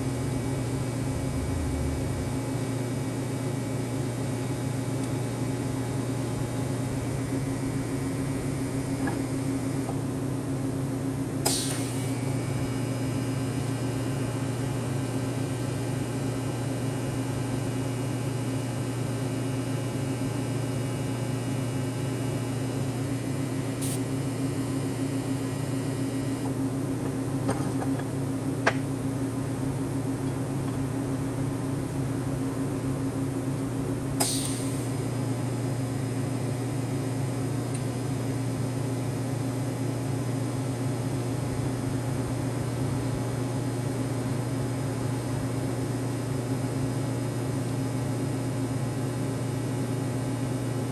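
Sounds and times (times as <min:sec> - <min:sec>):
low mechanical hum: 0:00.0 - 0:50.9.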